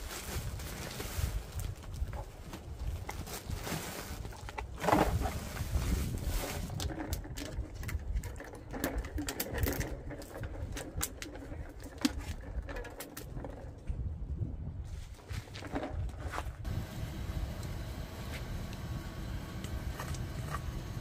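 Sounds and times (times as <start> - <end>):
plastic bags rustling: 0.0 - 7.9
items knocking and clicking: 6.6 - 14.0
low steady rumble: 16.6 - 21.0.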